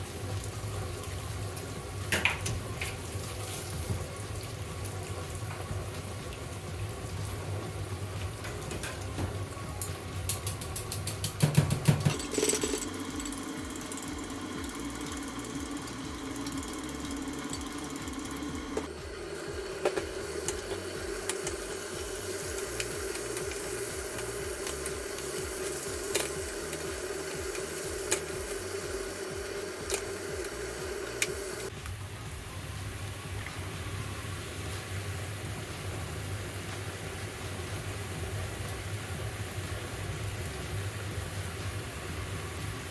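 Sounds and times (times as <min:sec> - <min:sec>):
food sizzling in a frying pan: 0:00.0 - 0:42.9
steady hum: 0:00.0 - 0:42.9
spatula clicking against pan: 0:10.3 - 0:12.1.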